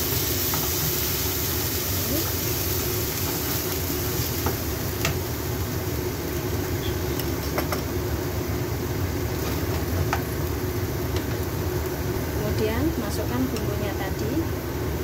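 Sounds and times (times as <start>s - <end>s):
meat and garlic frying: 0.0s - 15.0s.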